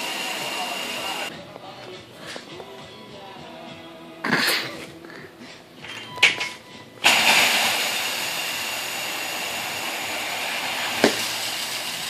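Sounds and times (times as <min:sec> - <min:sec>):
steady rushing hiss with whine: 0:00.0 - 0:01.3, 0:07.0 - 0:12.0.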